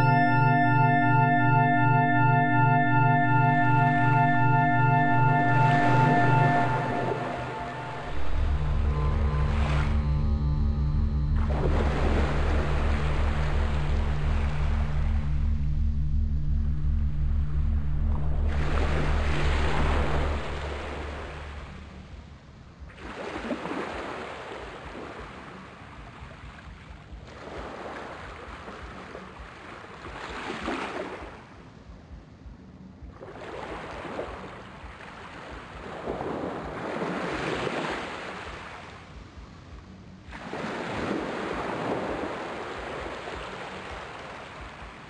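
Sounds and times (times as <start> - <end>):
small waves washing on beach: 22.9 - 31.8, 33.2 - 45.0.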